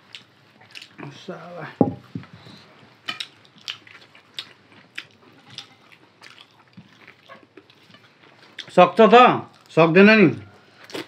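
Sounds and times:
wet chewing and lip smacks: 0:00.0 - 0:01.0, 0:03.0 - 0:08.8, 0:10.7 - 0:11.0.

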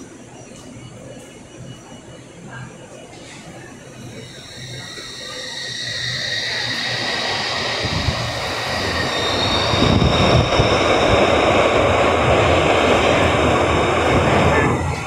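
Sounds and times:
train wheels rumbling on rails: 0:04.2 - 0:15.0.

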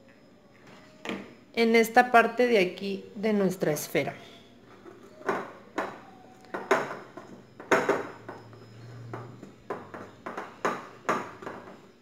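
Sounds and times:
knocks and clicks on tabletop: 0:09.1 - 0:11.8.

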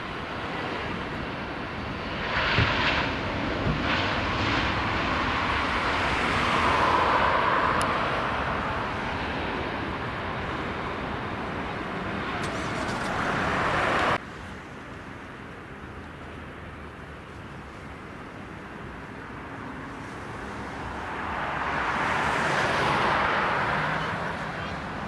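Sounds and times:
airliner jet engines: 0:00.0 - 0:25.0.

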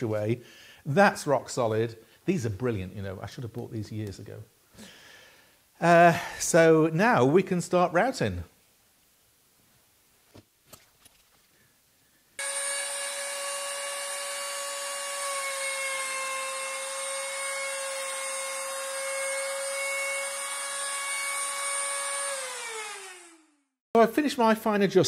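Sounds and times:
trim router whining: 0:12.4 - 0:23.6.

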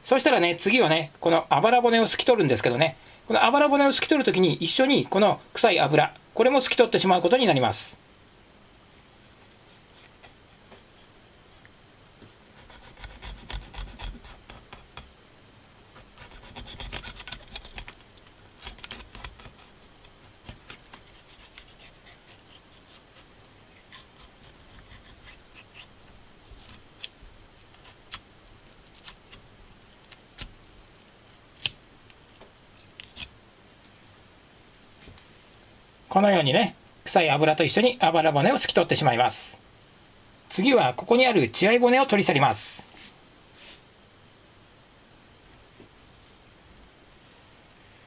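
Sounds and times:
knife scraping fish ribs: 0:12.5 - 0:15.0, 0:16.0 - 0:26.0.

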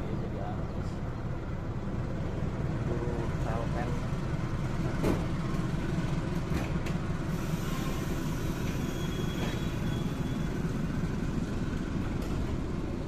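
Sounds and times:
train wheels rumbling on track: 0:00.0 - 0:13.0
faint thin squeal: 0:07.6 - 0:10.6.

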